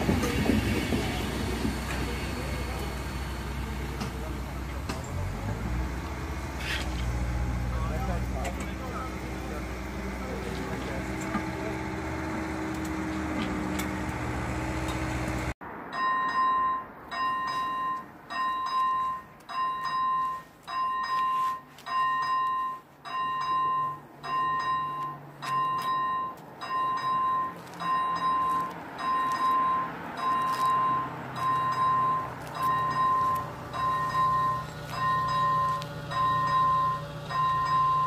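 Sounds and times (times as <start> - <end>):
engine drone: 0.0 - 15.9, 24.3 - 38.0
level crossing warning bell: 0.0 - 38.0.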